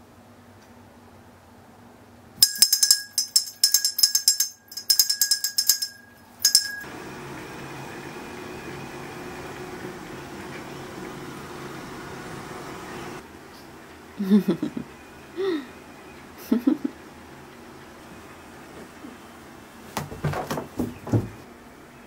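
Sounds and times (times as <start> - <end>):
low background hum: 0.0 - 22.0
small bell jangling: 2.4 - 6.9.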